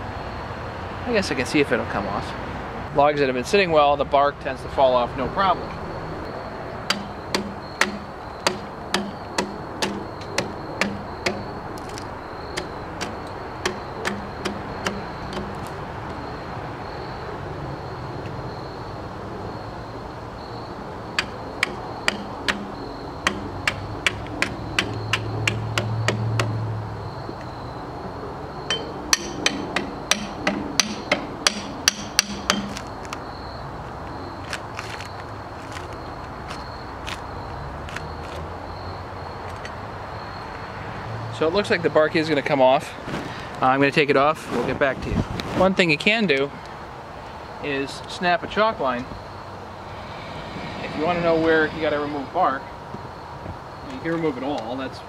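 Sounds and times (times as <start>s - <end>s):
pry bar knocking on log: 6.9s - 11.4s, 12.6s - 15.6s, 21.2s - 26.6s, 28.7s - 32.8s.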